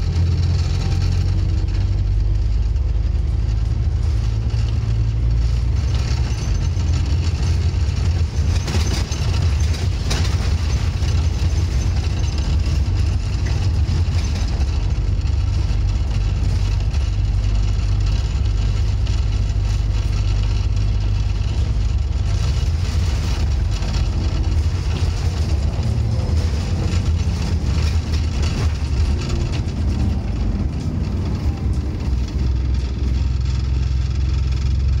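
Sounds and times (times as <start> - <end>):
bus diesel engine growl: 0.0 - 35.0.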